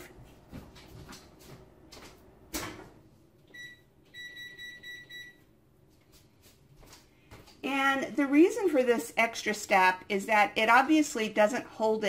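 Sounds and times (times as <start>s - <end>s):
electronic keypad beeps: 3.5s - 5.4s.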